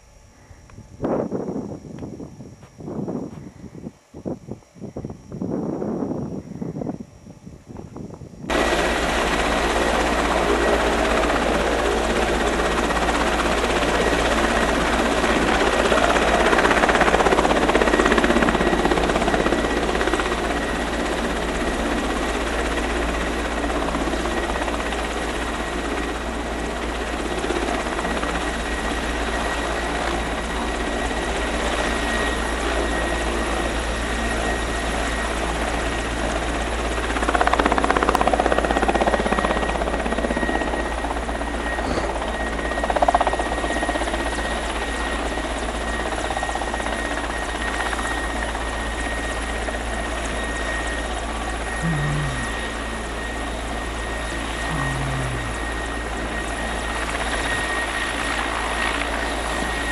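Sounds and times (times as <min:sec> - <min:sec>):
helicopter rotor thrum and whine: 0:00.0 - 0:59.9.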